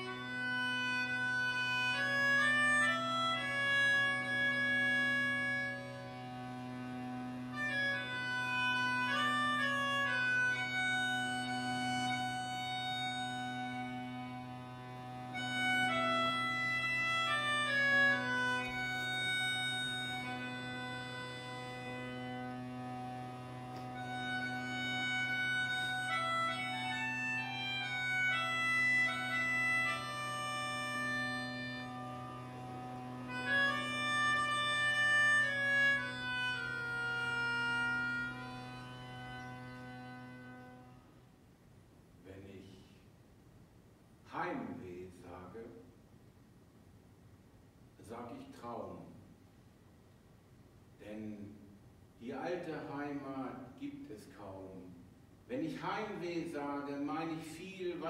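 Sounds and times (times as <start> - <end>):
steady low drone: 0.0 - 41.1
slow melody of held notes: 0.0 - 41.2
slow instrumental music: 0.0 - 41.3.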